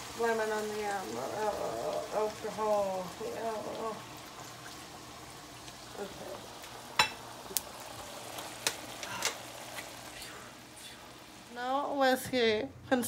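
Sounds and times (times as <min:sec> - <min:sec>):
onions sizzling in a skillet: 0:00.0 - 0:13.0.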